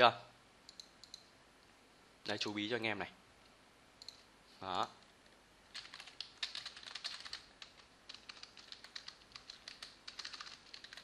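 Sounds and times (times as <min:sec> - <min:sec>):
typing on computer keyboard: 0:05.7 - 0:11.0.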